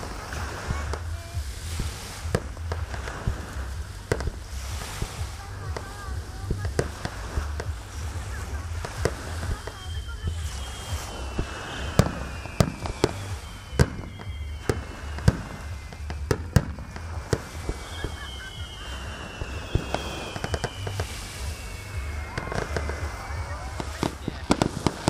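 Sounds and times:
descending firework whistles: 0.0 - 25.0
fireworks bangs: 0.0 - 25.0.

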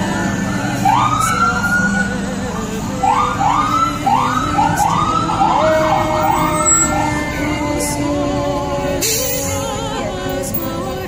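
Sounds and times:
vehicle siren whooping: 0.0 - 2.4, 3.0 - 7.9.

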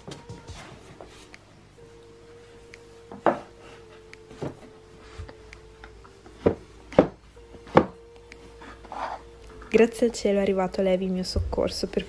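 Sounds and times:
objects knocking on wooden shelf: 6.4 - 8.0.

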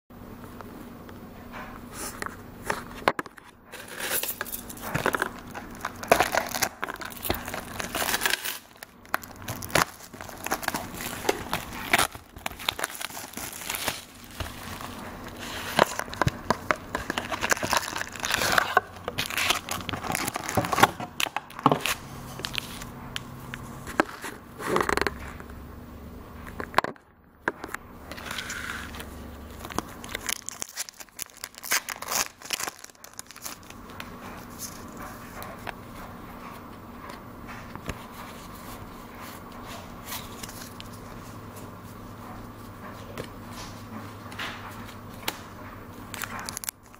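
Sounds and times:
plastic wrap and foil crinkling: 2.7 - 25.1, 28.0 - 35.4, 46.0 - 46.9.

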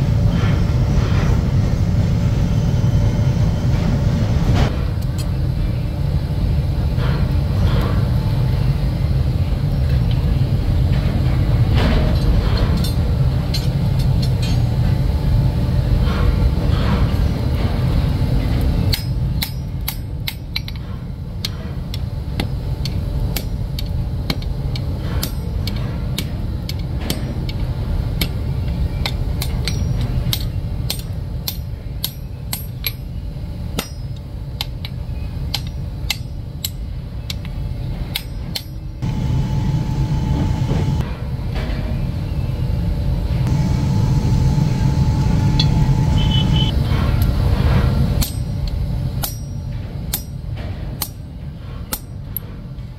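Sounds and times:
low rumble: 0.0 - 19.0, 38.9 - 41.6, 42.9 - 50.0
hammers striking iron on anvil: 18.9 - 37.5, 38.1 - 38.9, 48.2 - 52.5.

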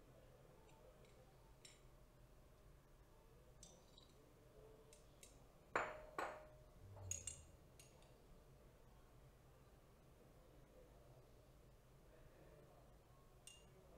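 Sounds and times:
glass flasks clinking: 5.8 - 7.5.

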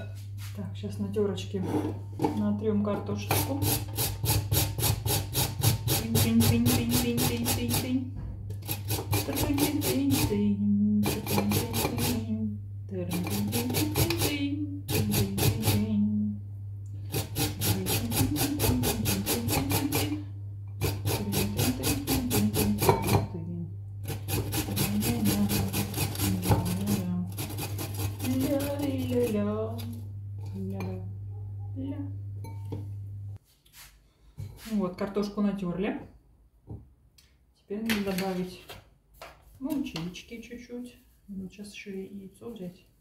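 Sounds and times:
potatoes rasping on a grater: 3.2 - 7.9, 8.6 - 10.4, 11.0 - 12.2, 13.1 - 15.9, 17.1 - 20.2, 20.8 - 23.0, 24.0 - 29.9.

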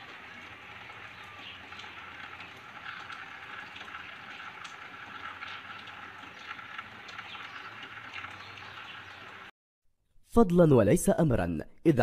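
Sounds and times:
rain falling: 0.0 - 9.5.

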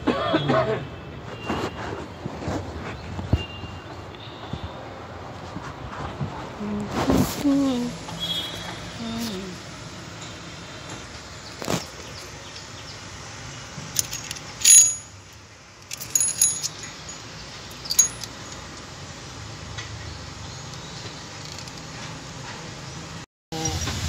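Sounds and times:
loose timing chain clinking: 13.9 - 15.2, 15.8 - 18.7.

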